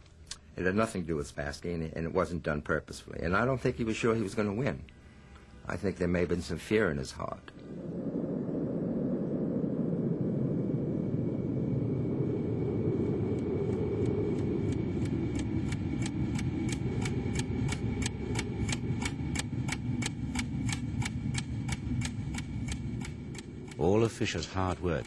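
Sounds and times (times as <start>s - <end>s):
steady low rumble: 0.0s - 25.0s
clock ticking: 14.7s - 25.0s.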